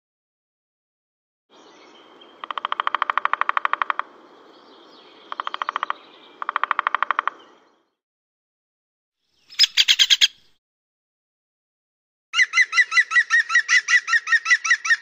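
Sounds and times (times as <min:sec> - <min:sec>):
woodpecker drumming: 0:02.3 - 0:04.2, 0:05.2 - 0:07.6.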